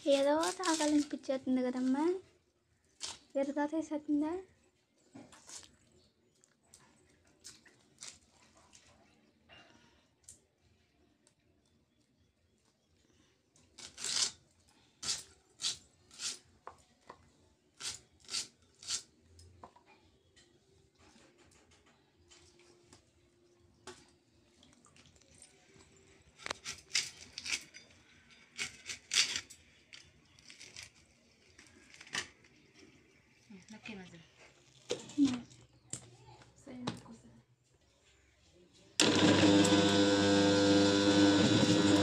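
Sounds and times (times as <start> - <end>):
onion skins crackling: 0.0 - 1.3, 13.7 - 14.4.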